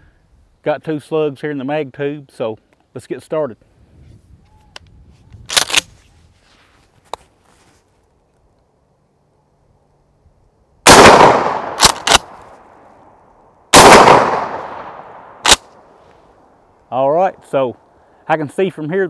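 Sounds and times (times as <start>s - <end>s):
shotgun blasts with echo: 10.9s - 12.4s, 13.7s - 15.6s.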